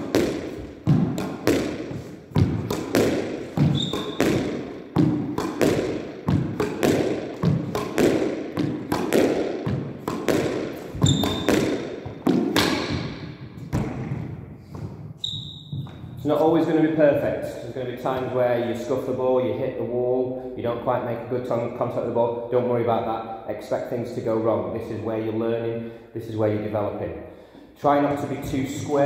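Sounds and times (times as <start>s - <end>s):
squash ball impacts: 0.0s - 16.5s
shoe squeaks: 3.6s - 4.5s, 10.8s - 11.7s, 14.7s - 16.3s.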